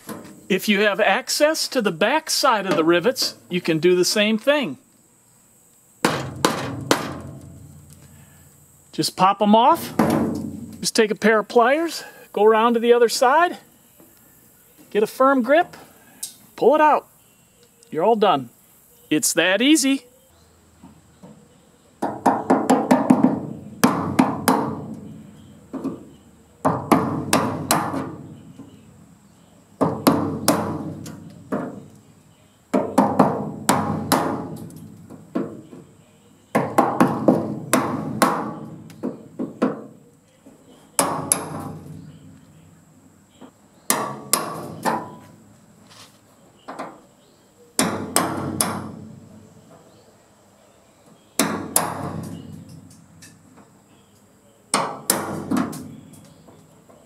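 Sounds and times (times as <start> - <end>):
hammer striking chisel: 41.0 - 41.8.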